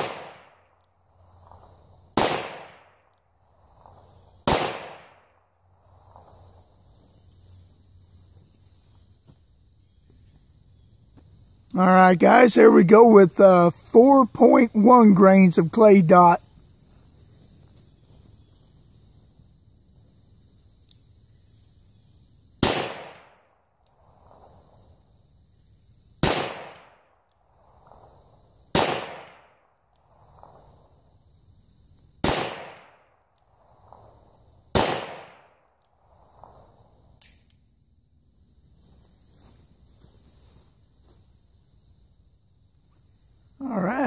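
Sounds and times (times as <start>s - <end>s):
revolver gunshots with echo: 0.0s - 0.6s, 2.2s - 2.9s, 4.5s - 5.3s, 22.6s - 23.3s, 32.2s - 33.0s, 34.8s - 35.5s.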